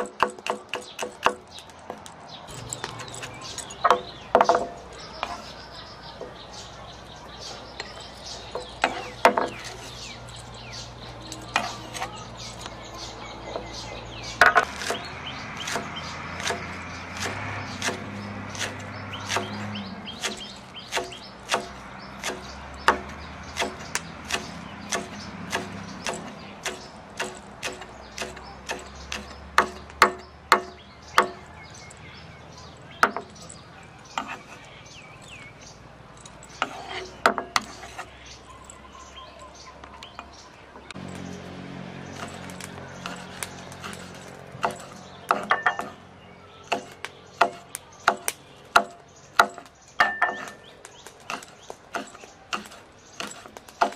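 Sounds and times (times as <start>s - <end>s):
cleaver chopping on wooden block: 0.0s - 2.1s, 8.5s - 9.8s, 14.4s - 31.8s, 33.0s - 33.4s, 34.1s - 34.6s, 42.2s - 46.0s, 46.6s - 53.9s.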